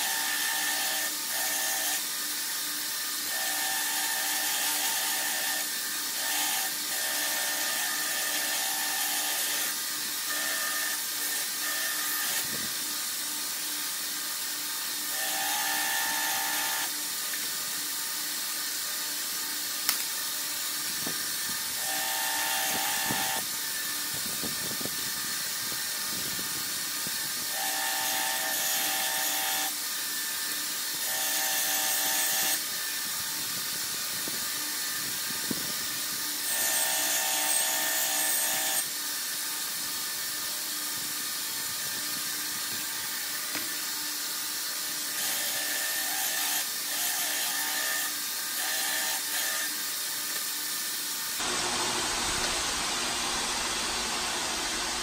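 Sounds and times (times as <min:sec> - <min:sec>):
belt grinder running: 0:00.0 - 0:55.0
steel blade grinding on belt: 0:43.8 - 0:50.0.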